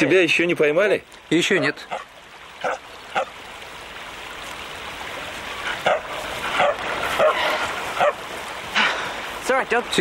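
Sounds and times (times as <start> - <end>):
dog barking: 1.9 - 3.3, 5.8 - 8.2.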